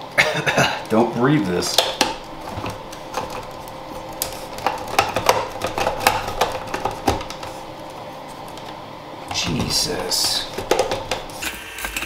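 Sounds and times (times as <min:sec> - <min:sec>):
electric spice grinder humming: 0:00.0 - 0:12.0
granules rattling against lid: 0:09.3 - 0:11.4.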